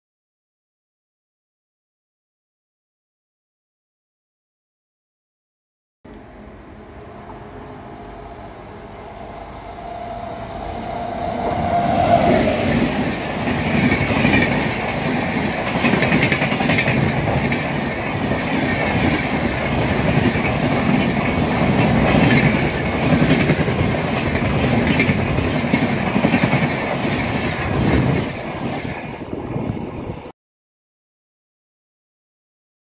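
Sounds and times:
electric locomotive whine: 0:06.1 - 0:30.3
train coaches rumbling past: 0:06.1 - 0:30.3
wheels clickety-clack on rail joints: 0:10.8 - 0:29.8.

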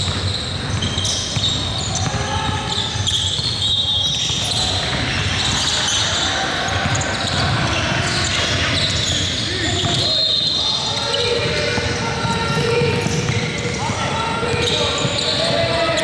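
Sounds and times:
basketball bouncing: 0:00.0 - 0:03.2, 0:06.7 - 0:10.1, 0:11.0 - 0:16.0
shoe squeaks: 0:00.0 - 0:16.0
voices in echoing hall: 0:00.0 - 0:16.0.

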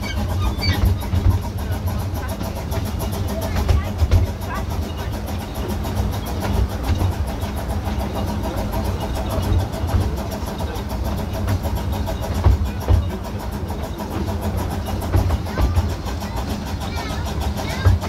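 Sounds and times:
miniature train running noise: 0:00.0 - 0:18.0.

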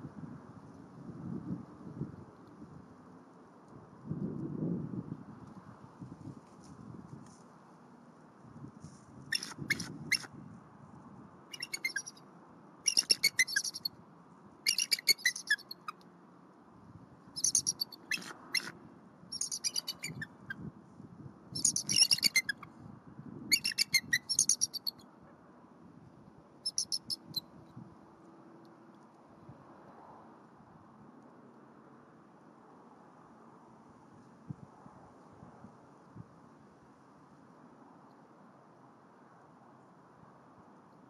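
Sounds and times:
eagles chattering alert calls: 0:09.3 - 0:10.2, 0:11.5 - 0:12.2, 0:12.9 - 0:13.9, 0:14.7 - 0:15.6, 0:19.4 - 0:20.3, 0:21.6 - 0:22.5, 0:23.5 - 0:24.8.

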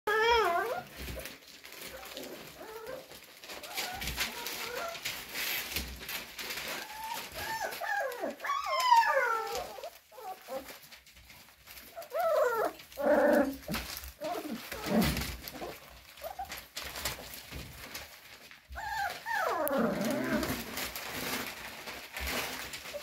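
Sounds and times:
paper rustling: 0:00.1 - 0:23.0
puppies whining: 0:00.1 - 0:23.0.

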